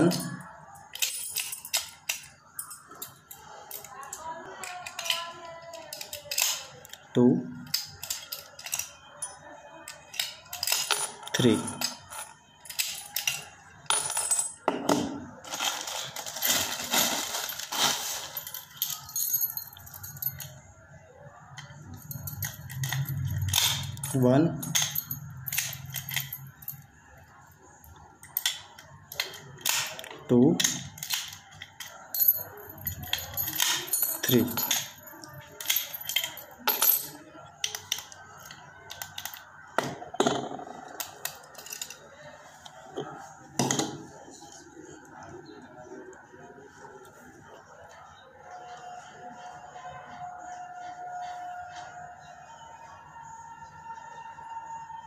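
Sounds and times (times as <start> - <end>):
padlocks clicking and knocking: 0.0 - 15.3, 21.6 - 26.6, 28.2 - 42.0
keys clinking: 0.0 - 20.6, 21.5 - 26.9, 27.9 - 42.3
key going into lock: 22.1 - 26.6, 28.2 - 38.1.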